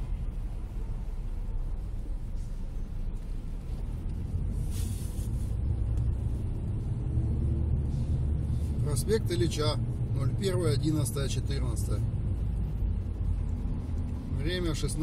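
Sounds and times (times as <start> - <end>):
road traffic rumble inside car: 0.0 - 15.0
brief hiss: 4.6 - 5.6.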